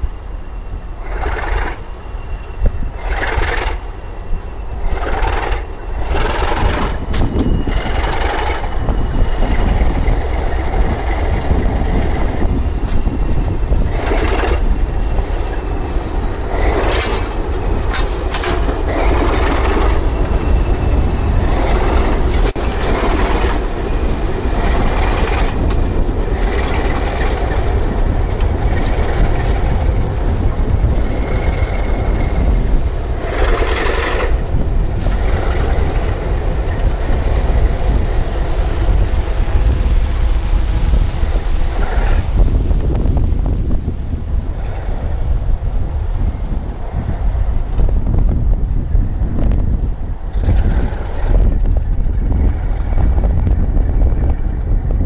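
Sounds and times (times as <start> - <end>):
freight train rumbling past: 0.0 - 55.0
wheels clattering: 12.9 - 20.2.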